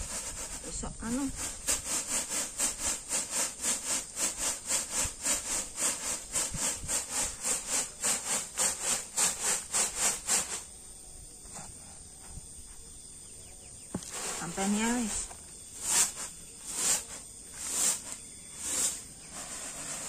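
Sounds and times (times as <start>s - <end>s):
grits rasping on bamboo tray: 1.3s - 10.5s, 14.0s - 20.0s.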